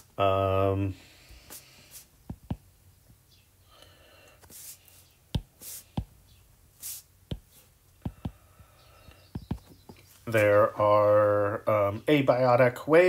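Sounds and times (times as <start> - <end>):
soft hissy stylus strokes: 1.4 - 2.2, 4.4 - 6.1, 6.8 - 7.7
stylus tapping on screen: 2.2 - 2.7, 5.3 - 6.2, 7.2 - 10.0.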